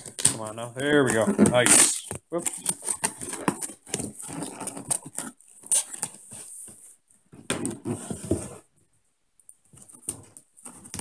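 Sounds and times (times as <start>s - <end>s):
cardboard box tearing and rustling: 1.0s - 6.5s.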